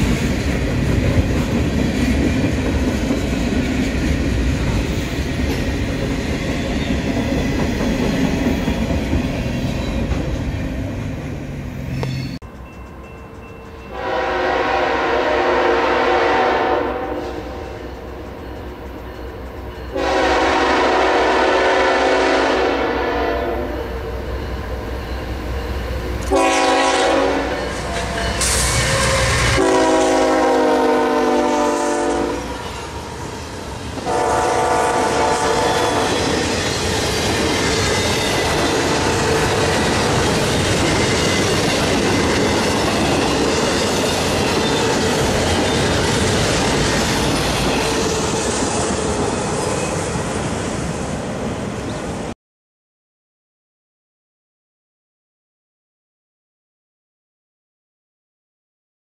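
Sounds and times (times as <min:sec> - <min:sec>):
freight train rumble and wheel clatter: 0:00.0 - 0:52.4
locomotive air horn blasts: 0:13.9 - 0:17.8, 0:19.9 - 0:24.0, 0:26.2 - 0:32.6, 0:34.0 - 0:36.3.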